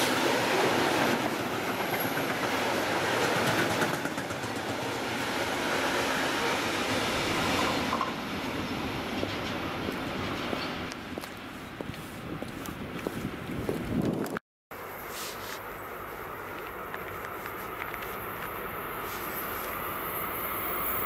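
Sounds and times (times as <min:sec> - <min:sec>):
freight train wheels clattering: 0:01.1 - 0:05.1.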